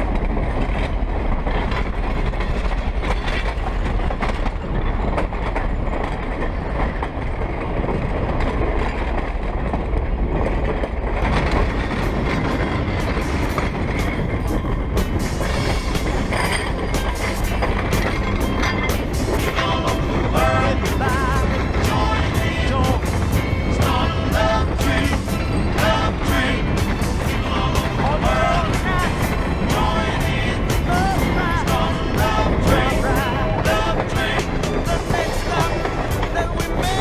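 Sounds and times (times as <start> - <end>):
train wheels rumbling on rails: 0.0 - 37.0.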